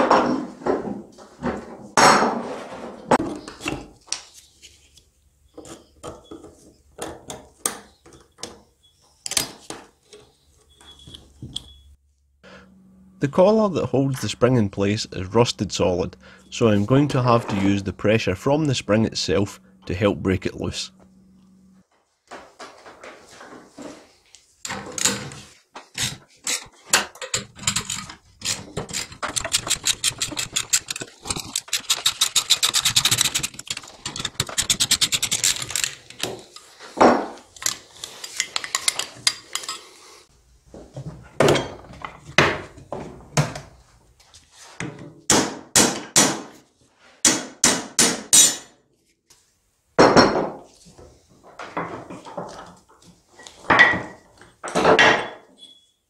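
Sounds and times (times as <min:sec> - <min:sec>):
hammer striking metal spanner: 0:48.3 - 0:48.7.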